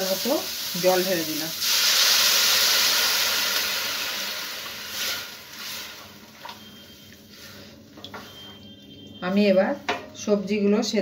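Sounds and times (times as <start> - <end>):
water hissing in hot pan: 0.0 - 6.3.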